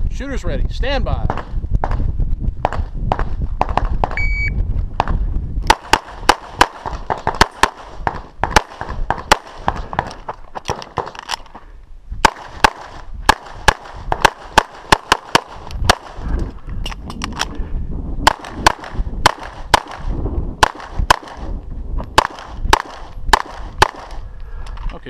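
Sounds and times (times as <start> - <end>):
pistol shots: 5.7 - 11.2, 12.2 - 16.2, 18.2 - 21.5, 22.1 - 24.2.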